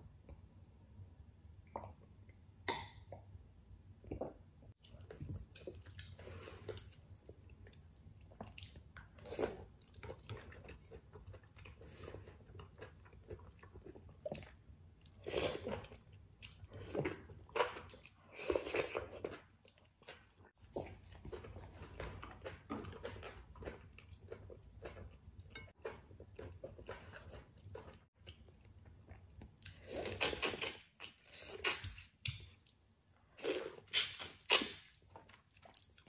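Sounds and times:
chewing noodles: 0:04.8 - 0:32.7.

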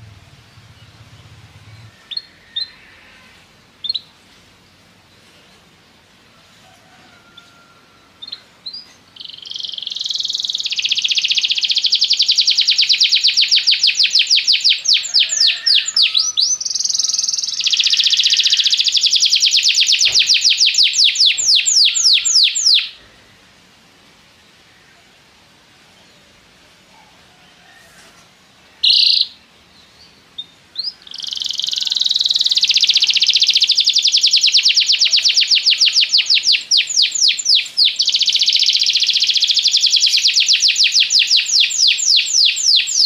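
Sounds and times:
canary singing trills: 0:00.0 - 0:04.2, 0:08.2 - 0:23.1, 0:28.8 - 0:43.0.

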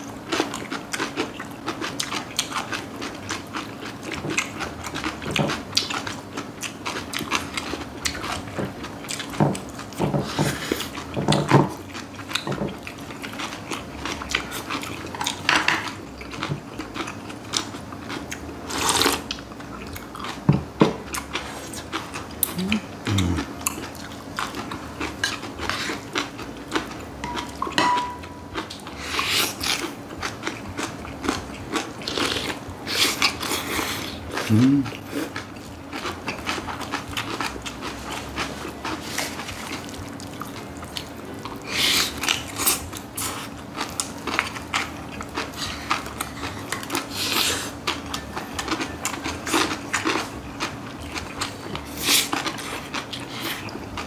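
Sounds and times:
crunchy chewing: 0:00.0 - 0:54.0
spoons clinking on bowls: 0:27.2 - 0:28.3.

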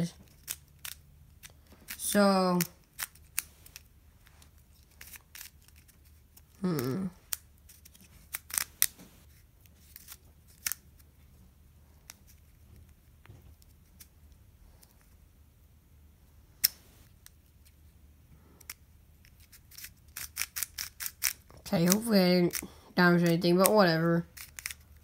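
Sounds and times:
puzzle cube snap: 0:05.0 - 0:09.0, 0:09.8 - 0:10.8, 0:19.4 - 0:22.6, 0:24.3 - 0:24.9
puzzle cube plastic clicks: 0:09.8 - 0:10.8, 0:18.6 - 0:24.9.

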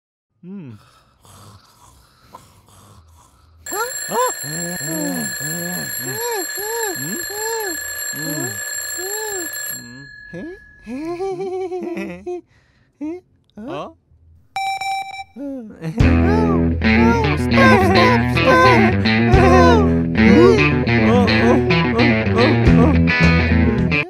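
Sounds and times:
alarm clock ringing: 0:03.7 - 0:11.0.

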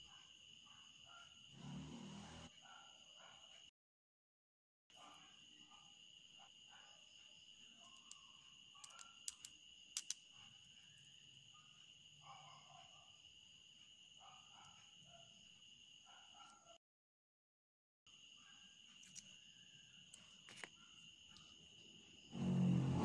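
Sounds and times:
small sharp clicks: 0:08.8 - 0:10.3.

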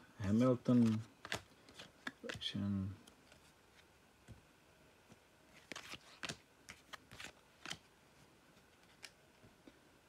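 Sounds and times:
trading cards clicking and sliding: 0:00.7 - 0:02.6, 0:05.6 - 0:07.9.

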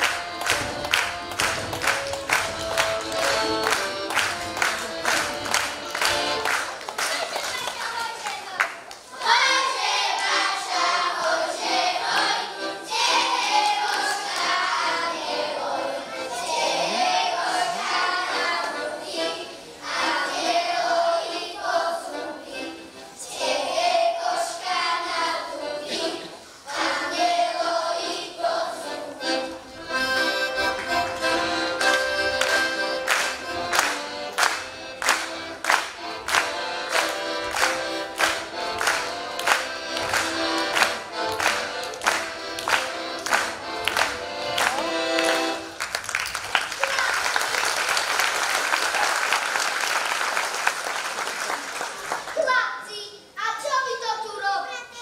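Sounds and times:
instrumental accompaniment: 0:00.0 - 0:07.1, 0:09.1 - 0:46.0
children's choir singing: 0:00.0 - 0:45.8.

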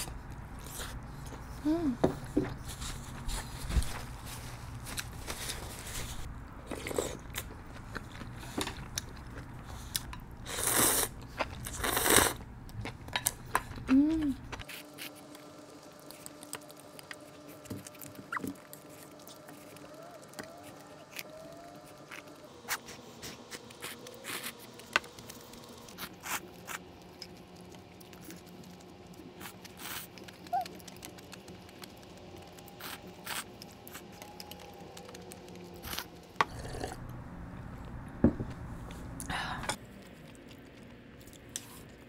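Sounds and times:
noodles slurped and chewed: 0:06.7 - 0:14.0, 0:21.9 - 0:37.0.

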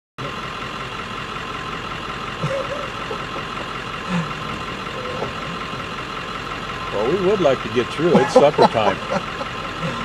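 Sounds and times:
pickup truck engine idling: 0:00.2 - 0:10.0.

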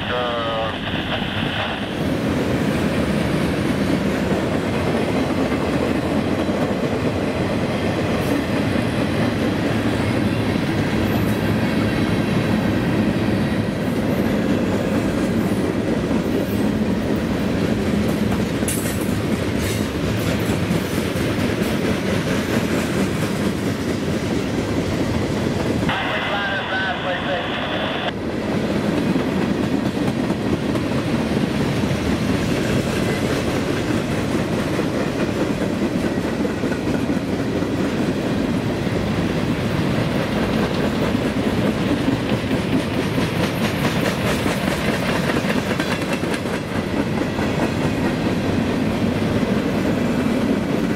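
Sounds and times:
freight train wheels on rails: 0:00.0 - 0:50.9.

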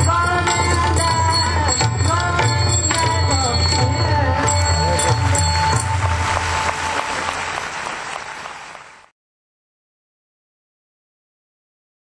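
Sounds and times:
devotional singing with tabla: 0:00.0 - 0:07.3
audience applause: 0:05.1 - 0:09.1.

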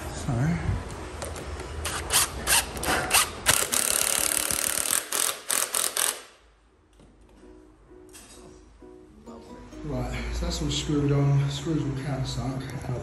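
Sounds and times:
cordless drill driving screws: 0:01.9 - 0:06.3.

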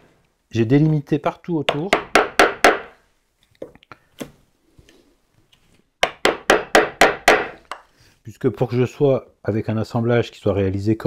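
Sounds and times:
mallet striking wood chisel: 0:01.7 - 0:03.0, 0:06.0 - 0:07.8.

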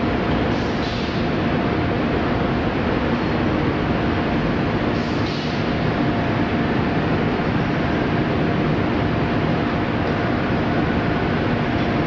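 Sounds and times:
factory machinery rumble: 0:00.0 - 0:12.0.

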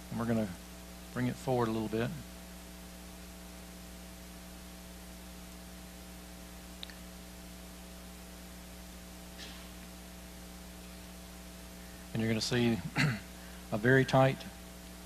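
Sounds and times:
electrical mains hum with hiss: 0:00.0 - 0:15.0
faint click: 0:06.8 - 0:07.1.

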